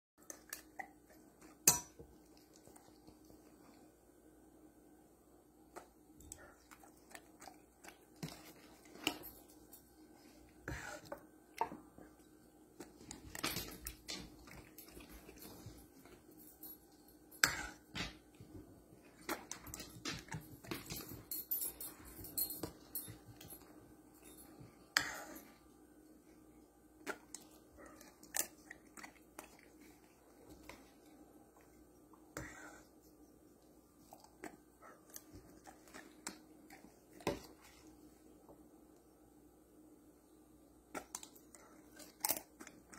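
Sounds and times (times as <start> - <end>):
faint steady hum: 0.2 - 42.9.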